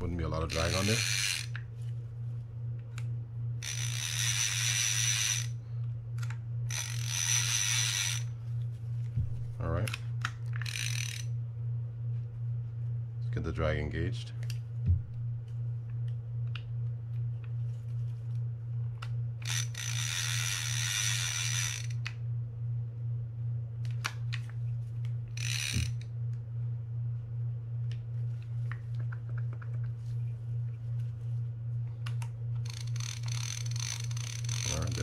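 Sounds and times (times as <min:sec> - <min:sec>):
steady low hum: 0:00.0 - 0:35.0
fishing reel ratchet whirr: 0:00.3 - 0:01.6, 0:03.6 - 0:05.6, 0:06.2 - 0:08.4, 0:09.8 - 0:11.4, 0:19.4 - 0:22.2, 0:25.3 - 0:26.1, 0:32.6 - 0:35.0.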